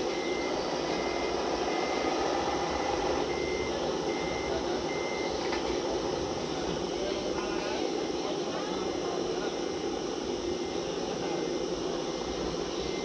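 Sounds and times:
short high reversing beeps: 0.0 - 2.2, 3.2 - 5.4
steady engine sound: 0.0 - 13.0.

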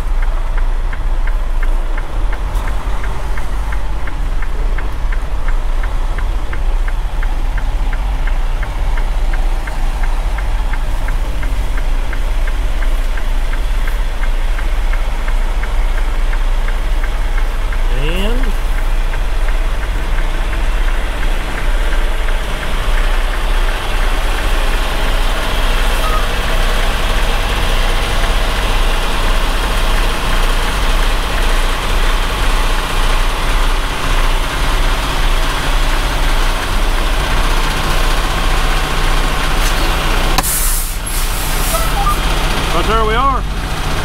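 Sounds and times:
diesel truck engine running: 0.0 - 44.0.

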